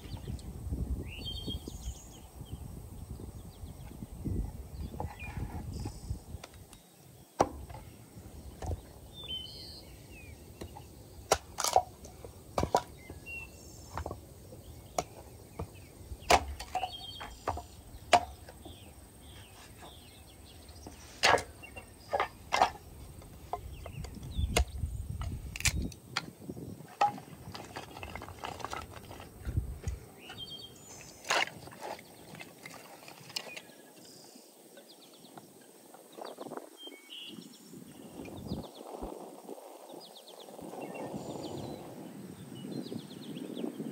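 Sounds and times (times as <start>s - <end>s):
wind rumbling on microphone: 0.0s - 33.8s, 35.0s - 43.9s
hatchet chopping wood: 10.6s - 11.9s, 14.9s - 18.7s.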